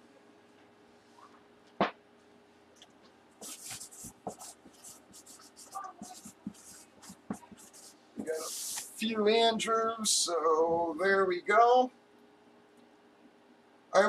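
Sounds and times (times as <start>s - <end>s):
marker pen scratching on cardboard: 3.4s - 9.0s.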